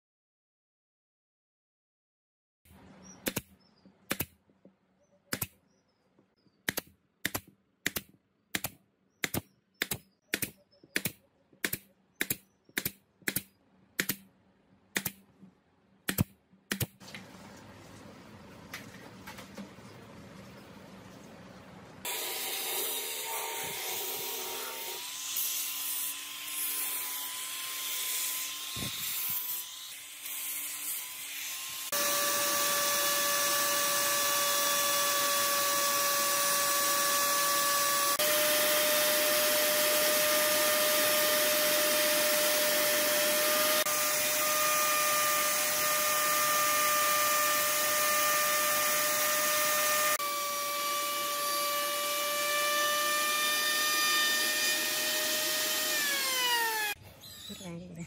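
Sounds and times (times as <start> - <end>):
router cutting particleboard: 31.0 - 57.6.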